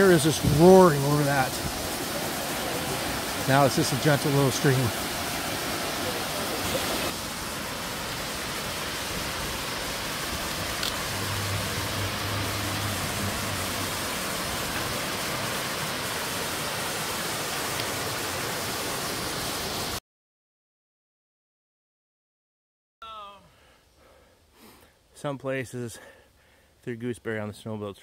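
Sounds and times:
waterfall rushing over rocks: 0.0 - 20.0.

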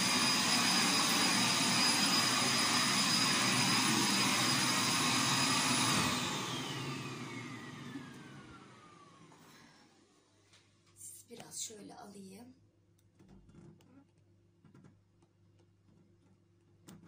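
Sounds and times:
vacuum cleaner running: 0.0 - 10.5.

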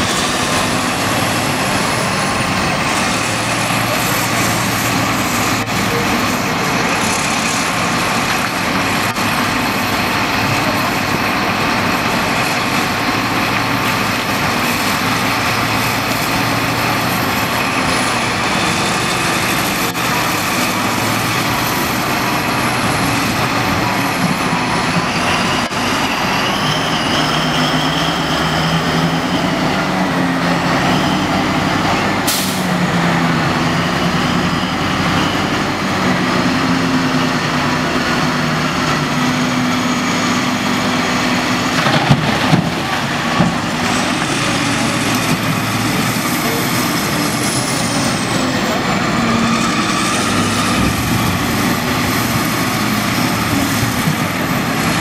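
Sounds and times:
heavy diesel engines under load: 0.0 - 55.0
short hiss: 32.3 - 32.6.

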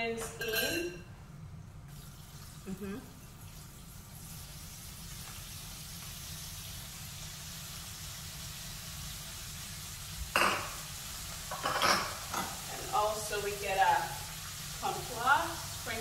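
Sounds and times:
hot oil sizzling in a pan: 3.4 - 16.0.

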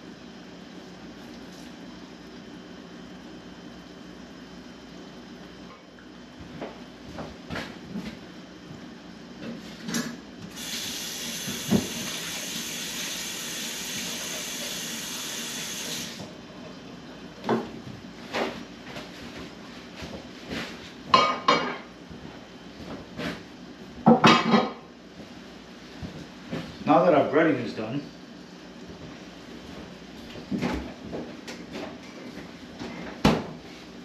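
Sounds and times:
tap water running: 10.5 - 16.3.

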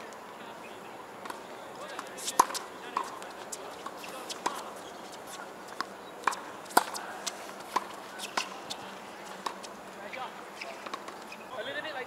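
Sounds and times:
tennis ball bouncing: 1.2 - 9.8, 10.7 - 11.4
racket hitting tennis ball: 2.0 - 9.7.

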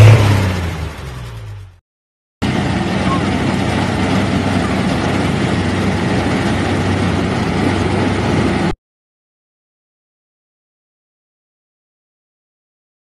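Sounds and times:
combine harvester engine hum: 0.0 - 1.8, 2.4 - 8.8
broad rushing noise: 2.4 - 8.8.

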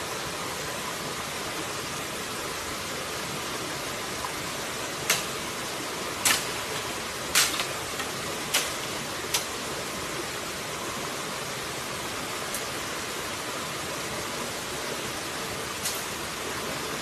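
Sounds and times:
stream rushing: 0.0 - 17.0.

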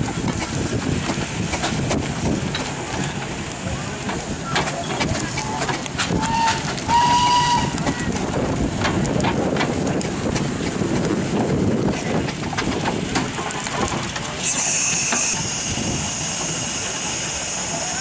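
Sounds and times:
steam engine knocking and clanking: 0.0 - 18.0.

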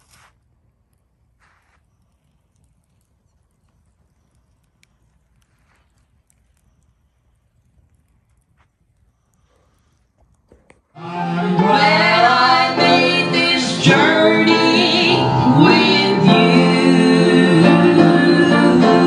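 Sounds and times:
instrumental accompaniment: 11.0 - 19.0
woman singing into microphone: 11.0 - 19.0.

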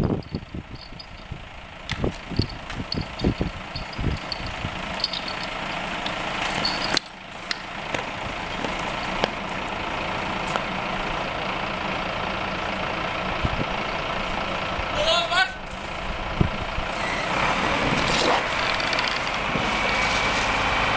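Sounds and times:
pump engine running: 0.0 - 15.0.

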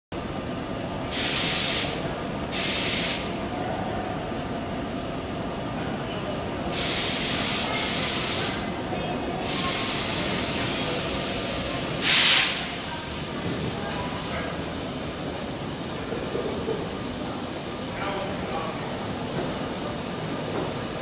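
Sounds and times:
subway train low rumble: 0.1 - 21.0
pneumatic air hissing: 1.1 - 3.4, 6.7 - 8.7, 9.4 - 17.8.

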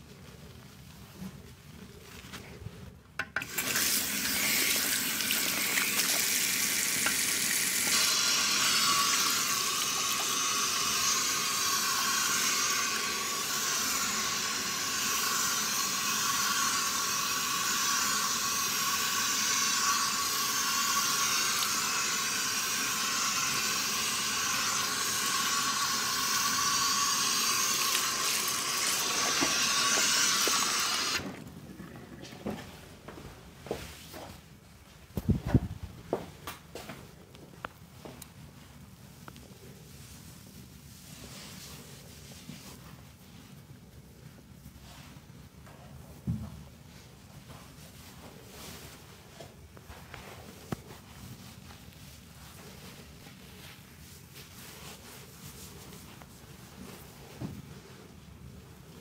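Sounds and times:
tap water running: 3.3 - 32.7.

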